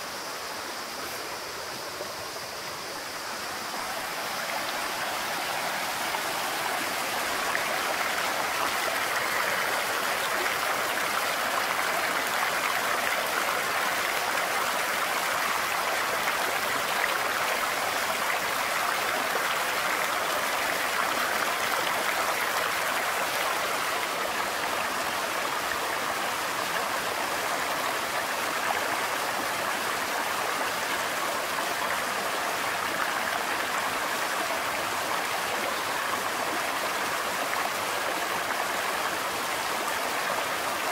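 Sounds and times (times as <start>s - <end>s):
stream rushing over stones: 0.0s - 40.9s.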